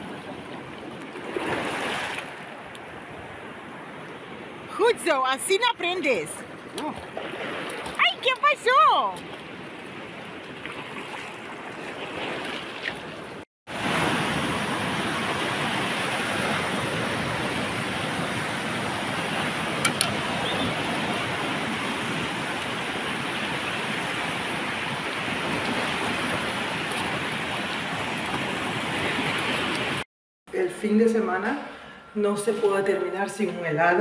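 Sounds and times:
sea surf washing onto shore: 13.7s - 30.0s.

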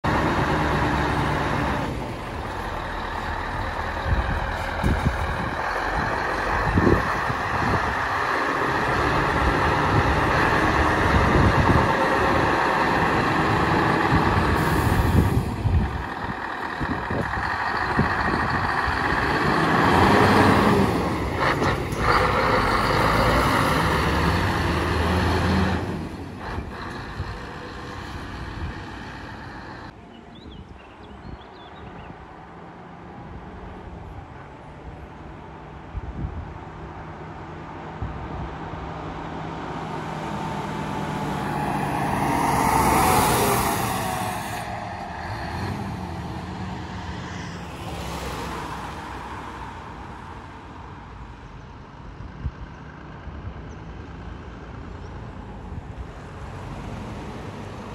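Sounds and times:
diesel truck engine running: 0.0s - 29.9s.

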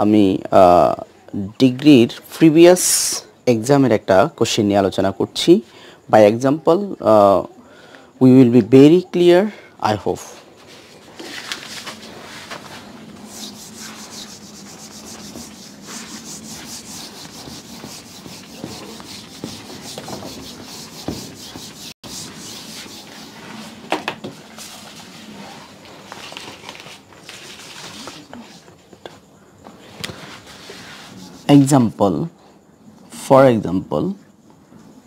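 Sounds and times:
eraser rubbing on whiteboard: 10.6s - 23.8s, 30.2s - 31.8s.

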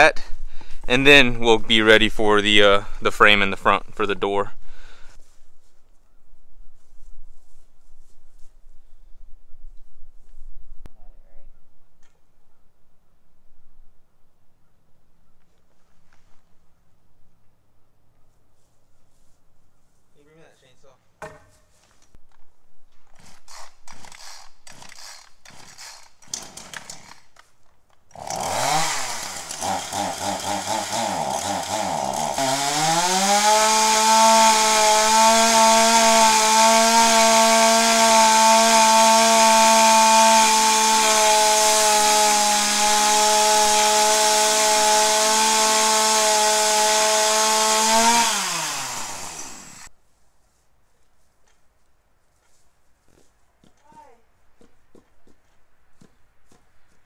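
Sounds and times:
knocks on wood: 21.2s - 21.5s
chainsaw cutting board: 23.1s - 27.5s, 28.1s - 49.9s.

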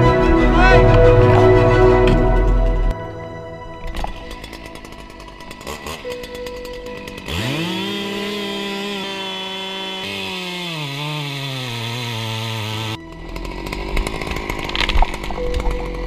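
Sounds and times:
chainsaw revving: 3.8s - 16.0s
chainsaw cutting tree trunk: 3.9s - 16.0s.

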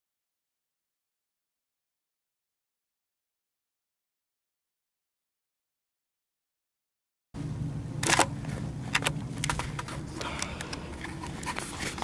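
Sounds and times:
low steady hum: 7.4s - 12.0s
camcorder handling noise: 8.0s - 12.0s.

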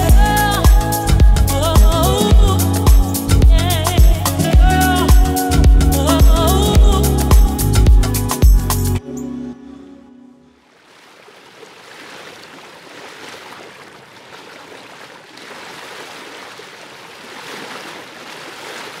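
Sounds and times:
sea water washing and lapping: 10.6s - 19.0s.

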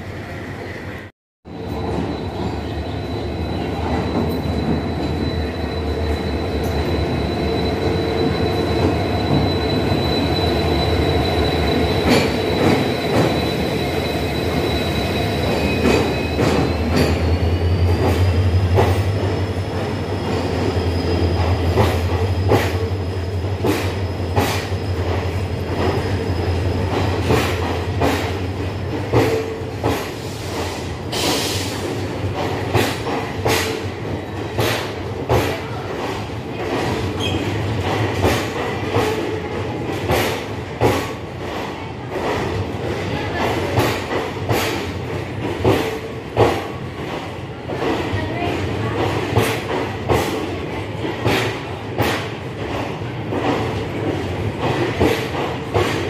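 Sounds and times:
train rumble: 0.0s - 56.0s
high wheel squeal: 1.5s - 23.4s.

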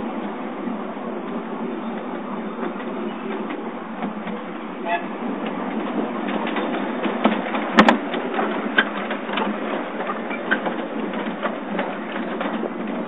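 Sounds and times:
railway wagons rattling on track: 0.0s - 13.0s
wheel clicks over rail joints: 5.2s - 13.0s.

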